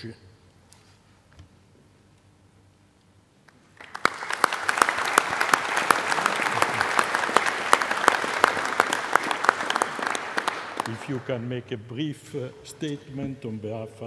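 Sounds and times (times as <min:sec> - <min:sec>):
crowd applauding: 0:03.6 - 0:11.8.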